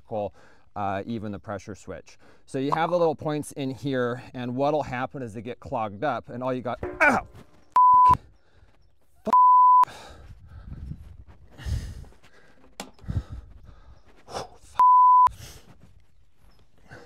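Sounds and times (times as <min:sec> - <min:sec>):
censor bleep: 0:07.8 - 0:08.2, 0:09.3 - 0:09.9, 0:14.8 - 0:15.3
faint breaths and mutters: 0:08.2 - 0:09.2, 0:09.8 - 0:17.0.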